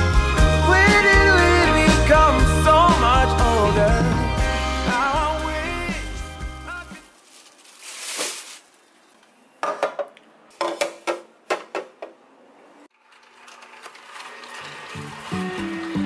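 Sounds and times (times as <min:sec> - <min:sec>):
rustle: 0:07.2 - 0:09.3.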